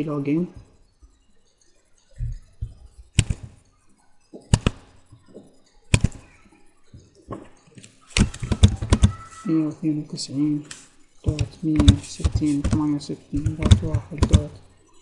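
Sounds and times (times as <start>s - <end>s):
computer mouse clicks: 5.9s - 6.4s, 7.8s - 9.2s
keyboard key taps: 11.3s - 14.6s.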